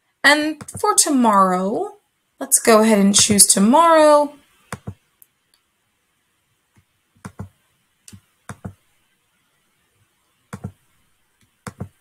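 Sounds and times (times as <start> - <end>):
computer mouse clicks: 4.7 - 5.6, 6.8 - 7.5, 8.1 - 8.8, 10.5 - 10.8, 11.4 - 12.0.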